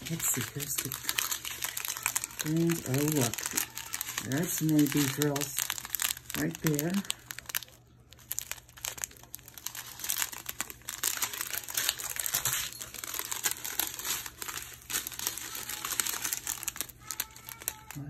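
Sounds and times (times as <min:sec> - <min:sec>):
plastic bags crinkling: 0:00.0 - 0:18.0.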